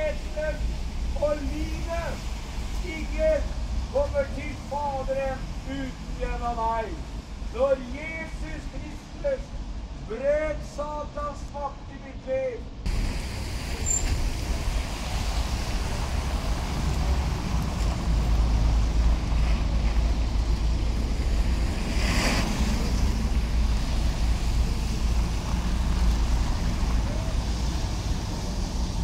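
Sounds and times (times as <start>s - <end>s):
bus and cars passing on wet road: 0.0s - 29.0s.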